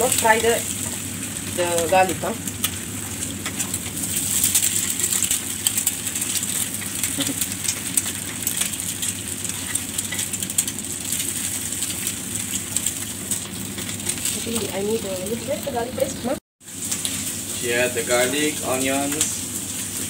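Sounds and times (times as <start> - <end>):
eggs sizzling on a griddle: 0.0 - 20.0
metal spatula scraping and clicking: 6.8 - 10.4.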